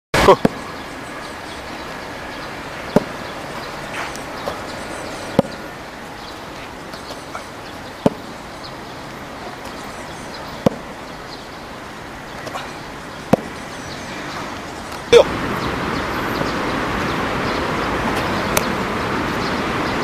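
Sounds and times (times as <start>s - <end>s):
faint outdoor background: 0.1s - 20.0s
sharp slaps: 18.2s - 18.7s.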